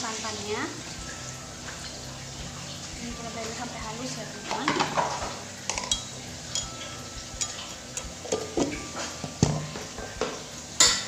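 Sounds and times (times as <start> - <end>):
kitchenware clinking: 4.4 - 11.0.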